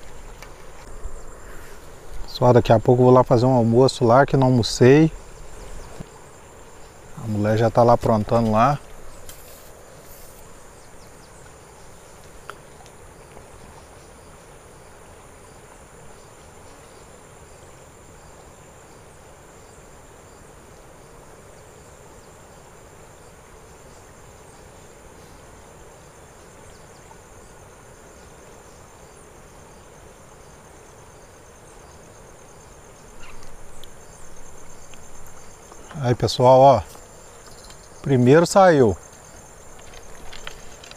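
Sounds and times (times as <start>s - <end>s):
insect chirring: 0.0s - 40.9s
river flowing: 0.0s - 40.9s
handling noise: 39.0s - 40.9s.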